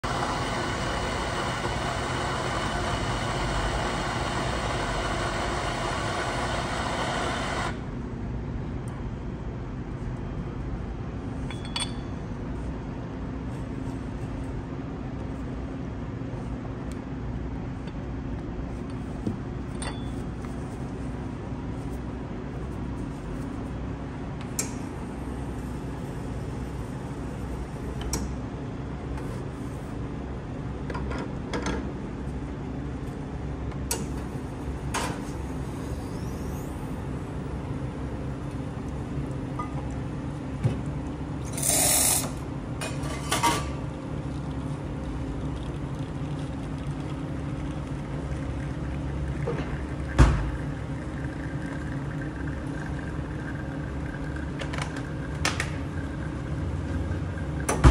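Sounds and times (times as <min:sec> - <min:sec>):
low hum of coffee machinery: 0:00.0 - 0:57.9
clinks of metal and ceramic: 0:11.5 - 0:12.2, 0:19.7 - 0:20.2.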